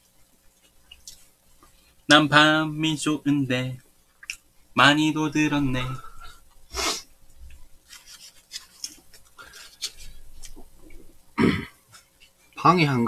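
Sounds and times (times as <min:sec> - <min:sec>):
chewing flaky pastry: 0:07.4 - 0:11.1.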